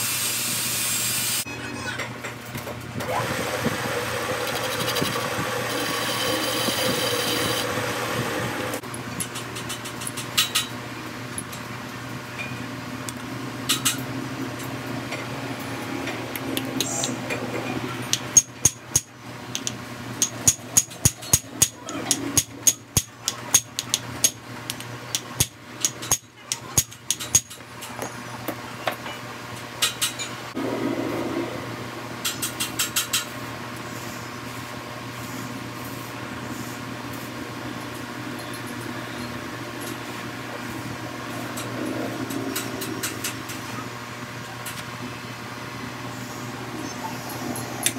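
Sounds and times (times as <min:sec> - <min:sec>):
steady machine hum: 0:00.0 - 0:09.2, 0:30.4 - 0:47.9.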